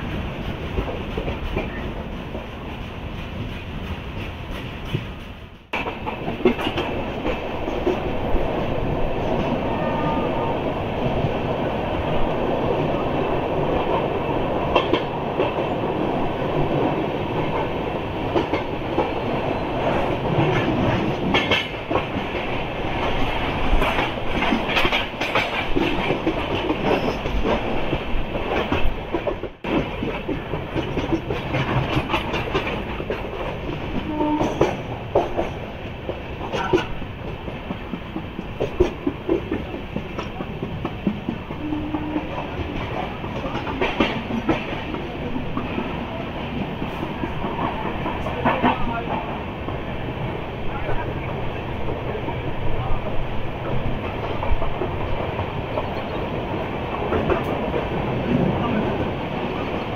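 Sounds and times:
train coach rumbling: 0:00.0 - 0:59.9
wheels clattering over rail joints: 0:17.4 - 0:49.9.

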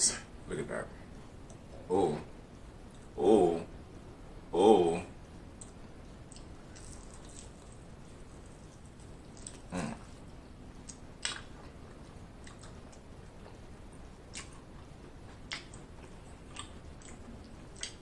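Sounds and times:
mouth smacks and clicks: 0:05.6 - 0:07.8, 0:10.8 - 0:13.6, 0:14.3 - 0:18.0
wet chewing: 0:05.6 - 0:10.2, 0:10.8 - 0:13.6, 0:14.3 - 0:18.0.

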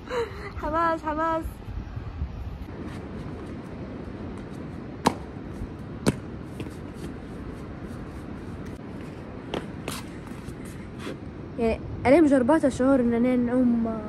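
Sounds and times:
street background noise: 0:00.0 - 0:14.0.

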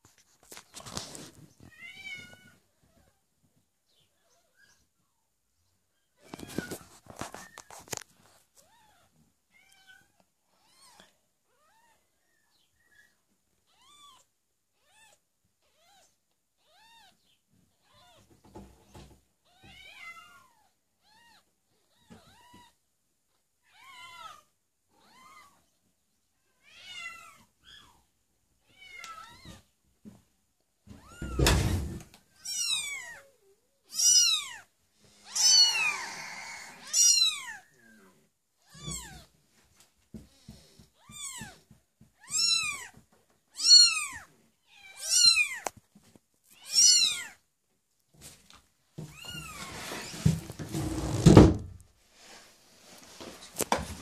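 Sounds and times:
kittens mewing: 0:33.9 - 0:37.9
loud thump: 0:51.2 - 0:51.8.

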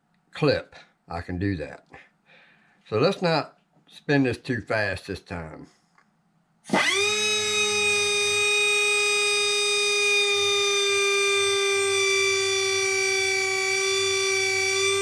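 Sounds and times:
pencil grinder whine: 0:06.7 - 0:15.0.

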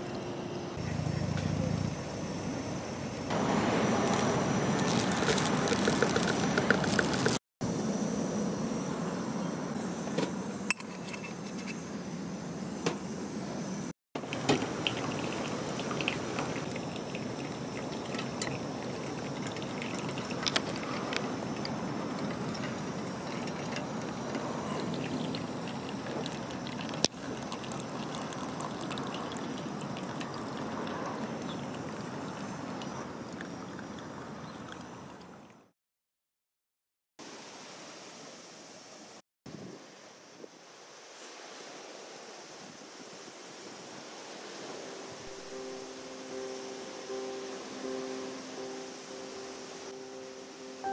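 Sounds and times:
steady hiss: 0:00.0 - 0:32.6, 0:37.2 - 0:50.9
coffee pouring and trickling: 0:03.3 - 0:07.4, 0:14.2 - 0:35.2.

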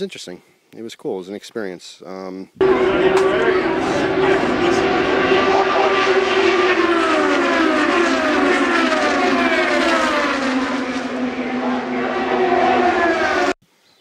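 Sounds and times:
race cars passing at speed: 0:02.6 - 0:13.6.

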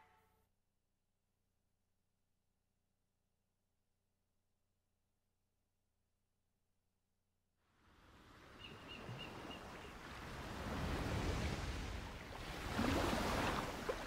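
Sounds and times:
wind: 0:07.6 - 0:14.0
ocean waves: 0:07.7 - 0:14.0.

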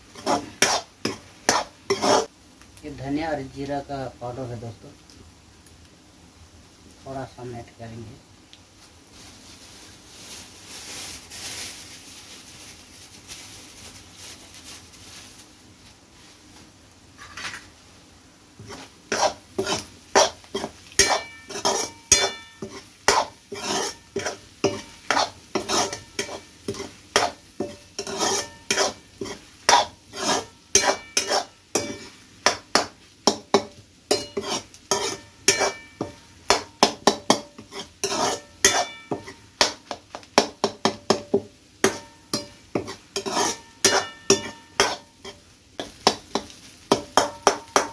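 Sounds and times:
spoon scraping steel pan: 0:00.1 - 0:02.3, 0:18.6 - 0:33.5, 0:34.1 - 0:39.9, 0:41.8 - 0:47.9
spoon knocking on metal pan: 0:35.0 - 0:37.7, 0:38.6 - 0:43.0, 0:43.8 - 0:45.0, 0:46.0 - 0:47.9.

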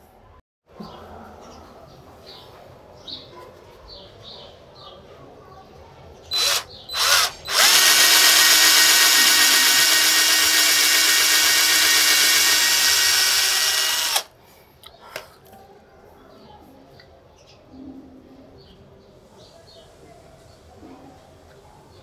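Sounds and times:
electric drill boring wood: 0:06.3 - 0:14.3.

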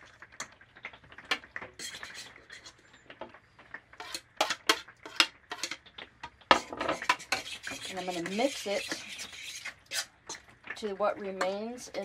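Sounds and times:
metal spoon scraping metal pan: 0:01.8 - 0:02.8, 0:04.0 - 0:05.8, 0:06.6 - 0:10.4.

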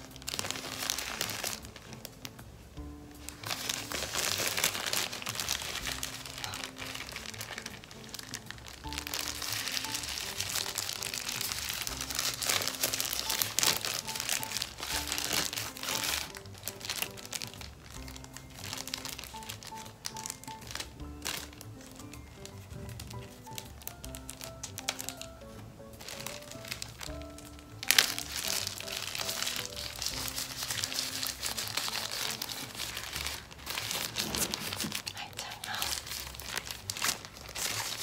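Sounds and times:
plastic sachet crinkling: 0:00.0 - 0:02.4, 0:03.2 - 0:38.0
soft background music: 0:00.0 - 0:38.0.

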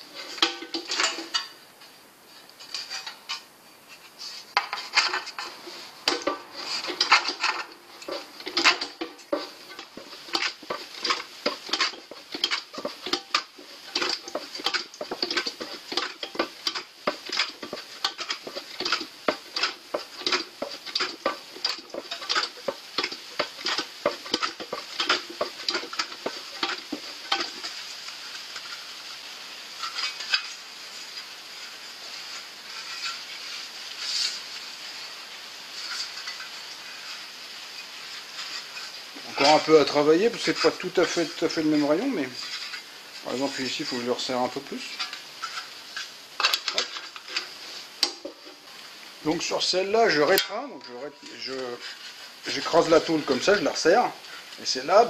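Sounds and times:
metal sheet rustling: 0:00.0 - 0:29.1, 0:35.7 - 0:55.0.

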